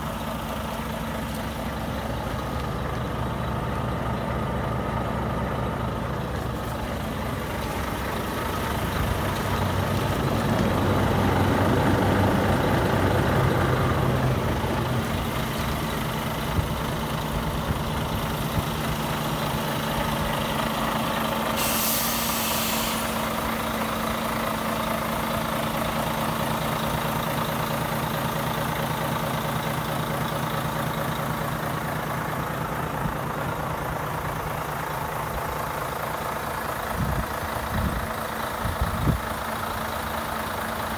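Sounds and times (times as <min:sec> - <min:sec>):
diesel engine idling: 0:00.0 - 0:40.9
compressed air hiss: 0:21.5 - 0:23.2.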